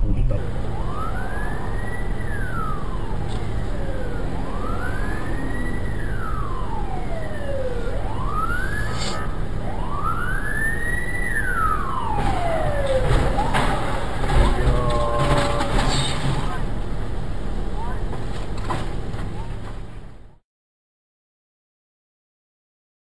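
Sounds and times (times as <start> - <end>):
traffic rumble: 0.0 - 20.4
siren wailing: 0.1 - 16.8.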